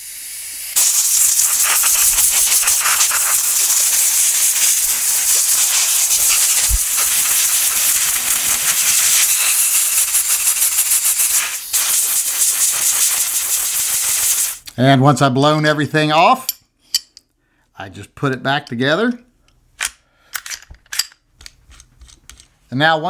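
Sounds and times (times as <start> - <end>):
compressed air hissing from blow gun: 0.0 - 14.7.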